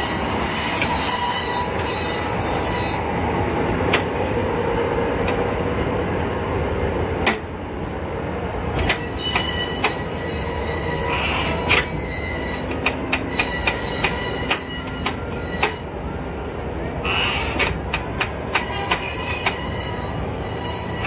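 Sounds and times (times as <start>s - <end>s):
wheels squealing: 0.0s - 3.1s, 8.7s - 16.1s, 17.0s - 17.6s, 18.5s - 21.0s
locomotive running noise: 0.0s - 21.0s
sharp clicks and knocks: 12.7s - 15.7s, 17.5s - 19.6s.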